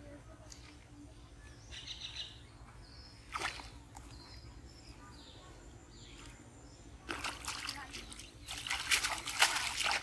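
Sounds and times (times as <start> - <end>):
small birds chirping: 0.1 - 10.0
rush of water: 7.1 - 10.0.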